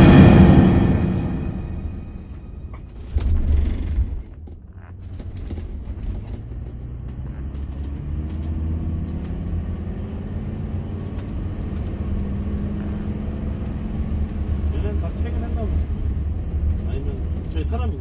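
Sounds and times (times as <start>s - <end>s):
loud thump: 0.0s - 3.6s
vehicle engine and road noise: 0.0s - 18.0s.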